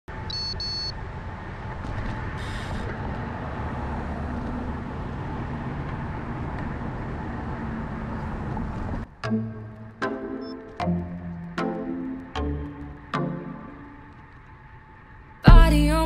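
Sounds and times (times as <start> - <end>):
road rumble: 0.1 - 10.0
passing traffic: 0.1 - 15.4.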